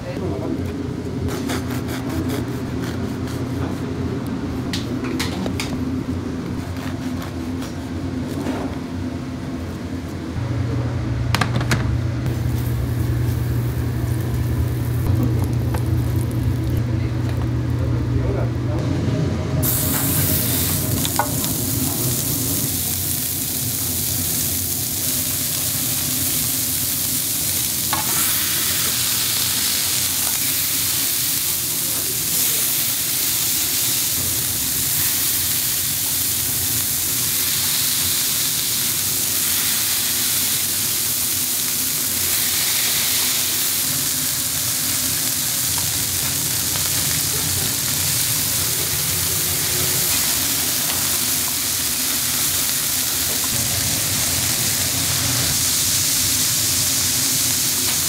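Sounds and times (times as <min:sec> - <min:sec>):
low steady hum: 0:00.0 - 0:28.0
food sizzling: 0:12.2 - 0:17.9, 0:19.6 - 0:58.0.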